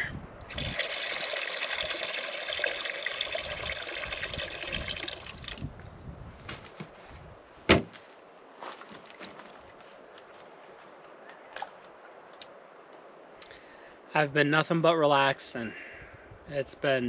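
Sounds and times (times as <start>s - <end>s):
water splashing into bowl: 0.5s - 5.7s
sharp knock: 7.7s - 7.9s.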